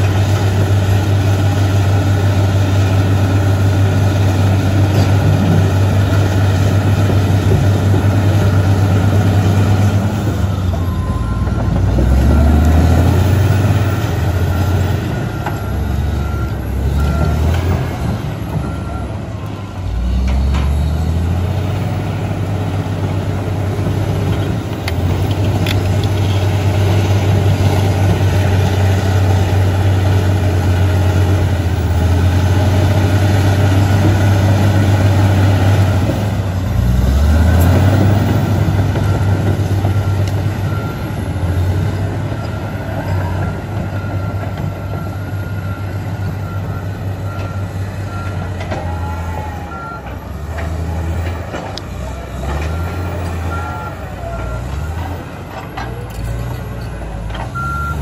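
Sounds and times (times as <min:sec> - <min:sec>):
bulldozer diesel engine running: 0:00.0 - 0:58.0.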